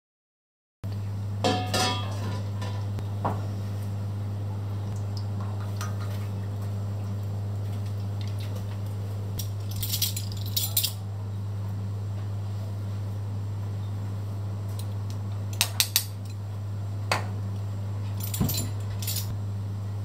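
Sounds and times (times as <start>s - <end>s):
kitchenware clinking: 1.4s - 2.9s, 9.4s - 11.0s.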